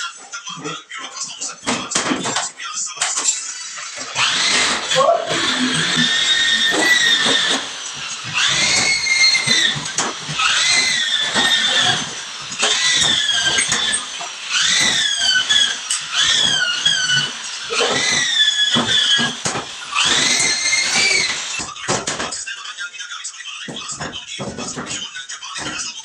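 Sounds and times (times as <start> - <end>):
power drill whining: 3.3 - 22.5, 23.7 - 25.0.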